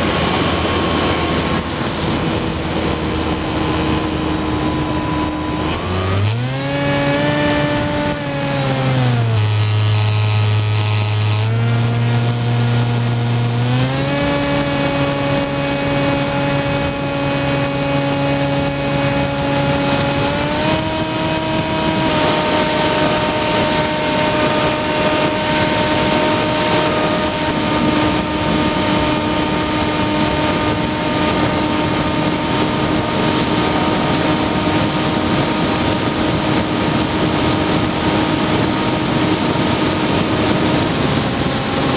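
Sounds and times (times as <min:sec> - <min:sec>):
model plane motor whine: 0:00.0 - 0:41.9
wind rushing on microphone: 0:00.0 - 0:41.9.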